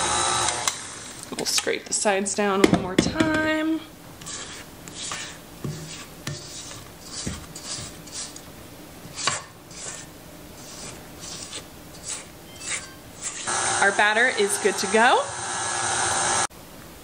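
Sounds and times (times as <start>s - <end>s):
spatula scraping steel bowl: 4.2s - 8.4s, 9.0s - 15.0s.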